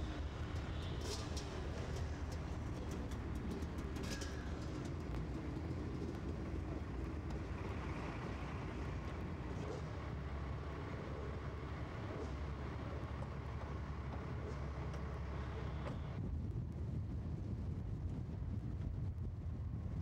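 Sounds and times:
dirt bike engines running: 0:00.0 - 0:16.2.

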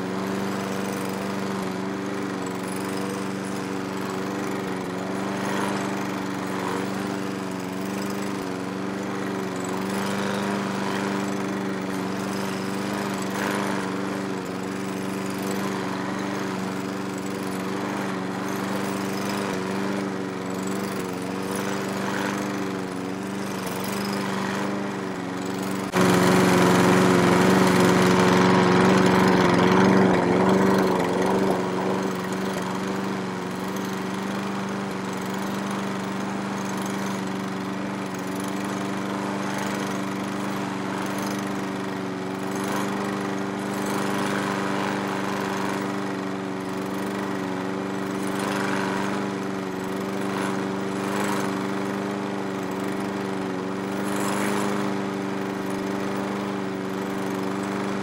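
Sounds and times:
lawn mower engine running: 0:00.0 - 0:58.0.

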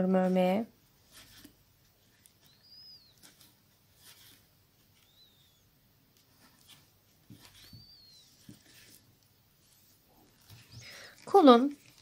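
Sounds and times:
yarn rustling with crochet hook: 0:00.0 - 0:12.0
faint high chirps: 0:02.1 - 0:03.6, 0:04.8 - 0:05.8, 0:07.4 - 0:09.0.

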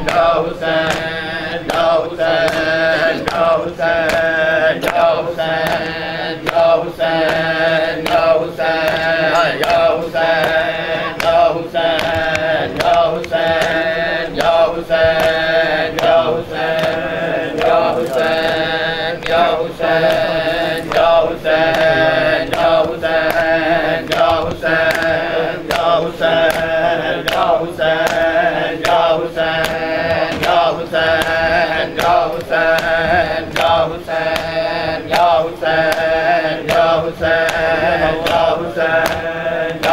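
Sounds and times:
hand slaps on chests: 0:00.0 - 0:39.9
men chanting in unison: 0:00.0 - 0:39.9.

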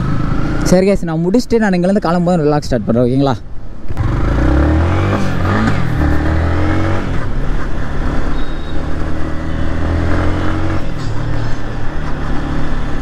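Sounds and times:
motorcycle engine accelerating: 0:03.9 - 0:13.0.

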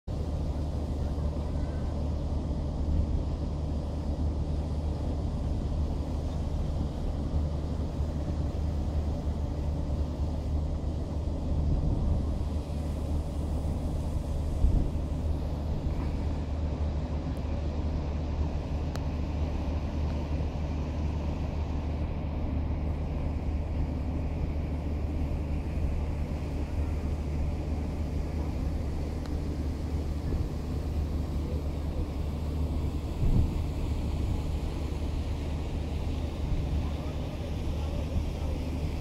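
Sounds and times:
distant engines rumbling: 0:00.0 - 0:39.0.

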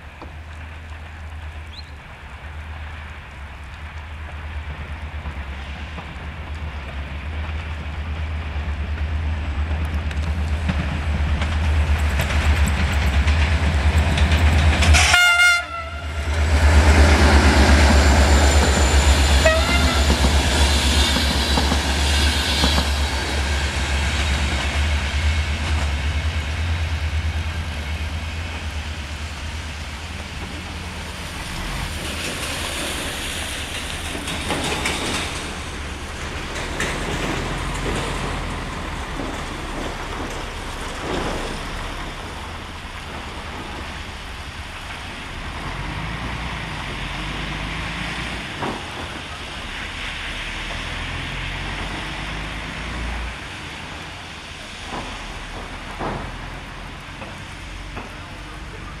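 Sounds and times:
diesel locomotive rumble: 0:00.0 - 0:59.0
train horn blast: 0:14.9 - 0:16.4, 0:19.3 - 0:20.3
wheels clattering over rail joints: 0:16.2 - 0:59.0.

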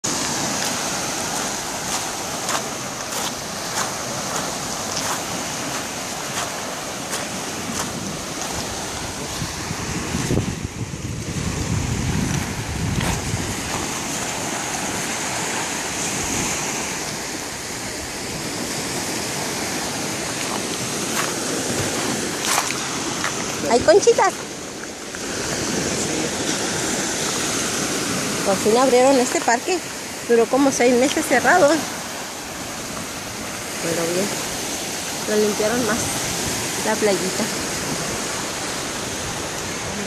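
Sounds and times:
waves washing onto beach: 0:00.0 - 0:40.0
footsteps on pebbles: 0:01.3 - 0:08.6, 0:20.4 - 0:23.5
wind rumble on microphone: 0:07.4 - 0:29.2.

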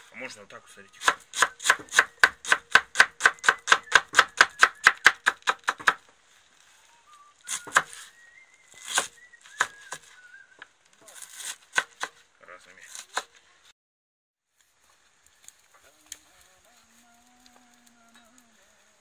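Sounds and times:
knife chopping onion on wooden board: 0:01.0 - 0:06.0, 0:07.6 - 0:07.9.

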